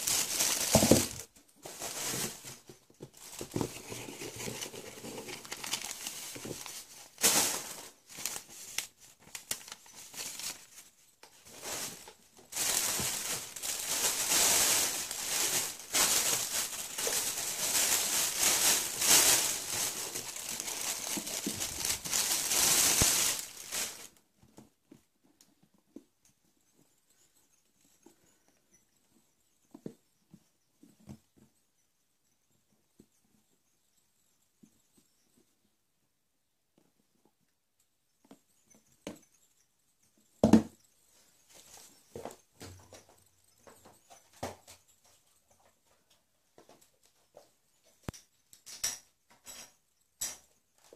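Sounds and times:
plastic bag crinkling: 0:00.0 - 0:10.8, 0:11.4 - 0:24.2.

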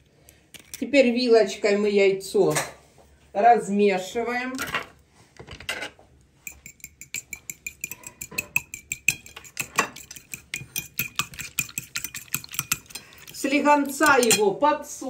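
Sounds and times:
fork clinking against plate: 0:06.5 - 0:14.5.

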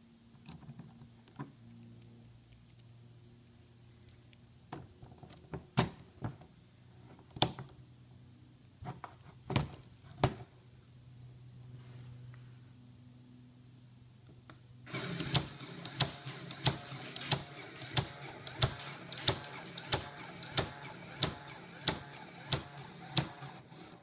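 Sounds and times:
toy motor and gears whirring: 0:14.9 - 0:24.0.

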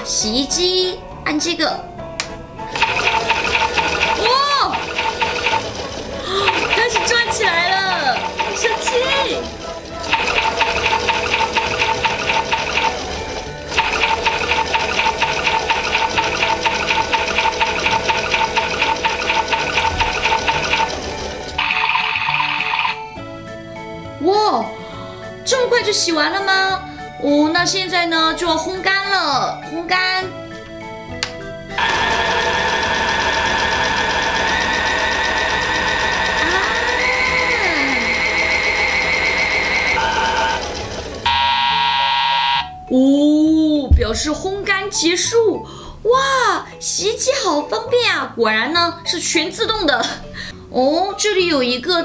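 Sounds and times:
toy washing machine motor pulsing: 0:02.7 - 0:23.0, 0:31.8 - 0:42.7
buzzer-like beep: 0:37.2 - 0:40.6, 0:41.3 - 0:42.7.

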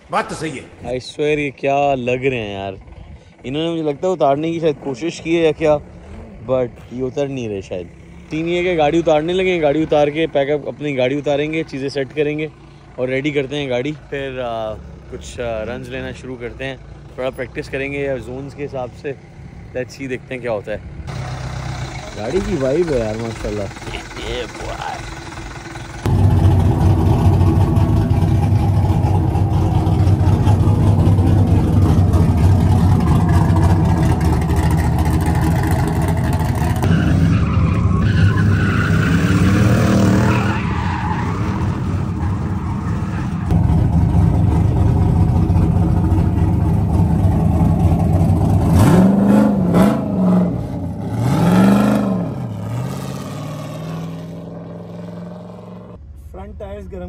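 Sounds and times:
tyres skidding: 0:00.0 - 0:56.0
car engines revving hard: 0:26.0 - 0:56.0.

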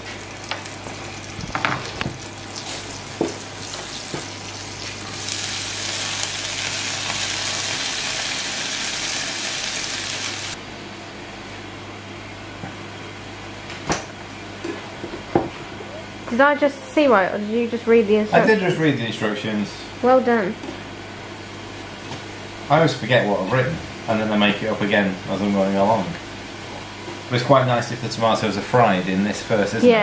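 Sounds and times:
leeks frying loudly: 0:00.0 - 0:10.6
butter sizzling in frying pan: 0:02.2 - 0:10.6
steady low hum: 0:10.5 - 0:30.0.

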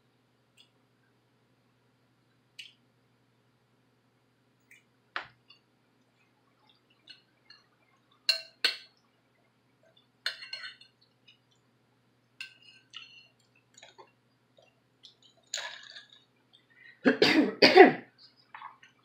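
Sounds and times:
fork clinking against glass bowl: 0:08.3 - 0:08.9, 0:10.3 - 0:11.0, 0:12.4 - 0:13.2.

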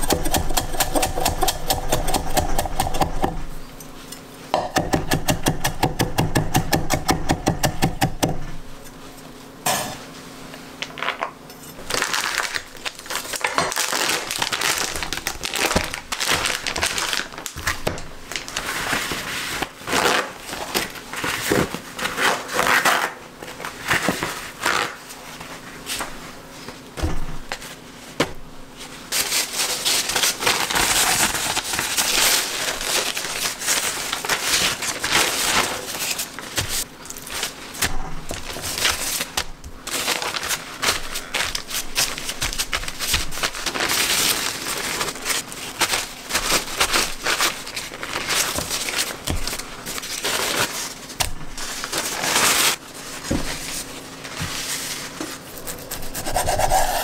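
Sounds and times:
paper towels rustling and crinkling: 0:11.8 - 0:28.2, 0:28.8 - 0:55.5.

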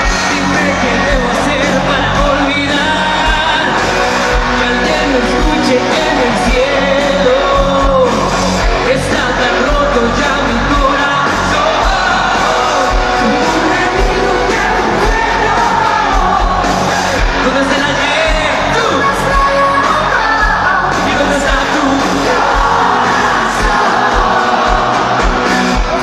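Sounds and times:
live rock band playing: 0:00.0 - 0:26.0
person singing: 0:00.0 - 0:26.0.

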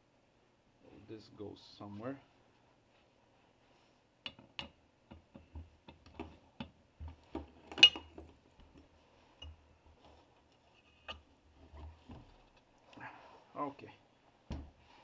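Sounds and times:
light metallic clicks and knocks: 0:04.2 - 0:09.6.

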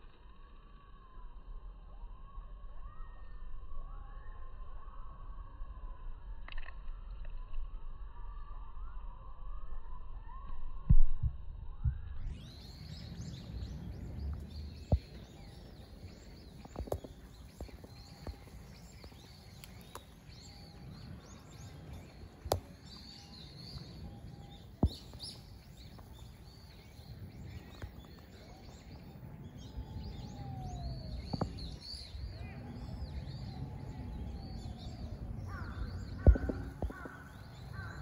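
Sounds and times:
steady low rumble: 0:04.7 - 0:38.0
small birds chirping: 0:12.2 - 0:38.0.

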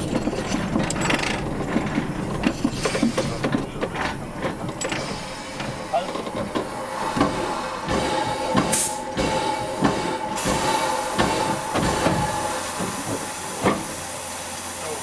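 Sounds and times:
steam locomotive knocking: 0:00.0 - 0:15.0
steam hissing: 0:06.6 - 0:15.0.

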